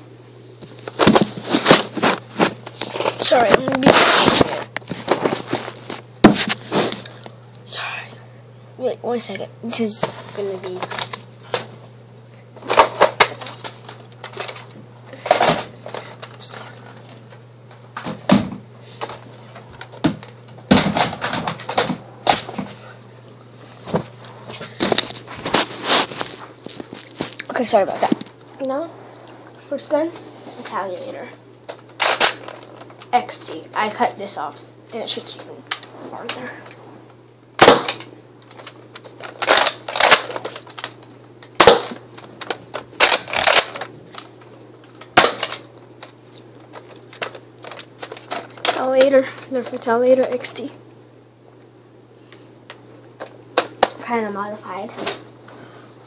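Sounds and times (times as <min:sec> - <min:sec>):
toy blaster clacks and thunks: 0:37.6 - 0:38.0.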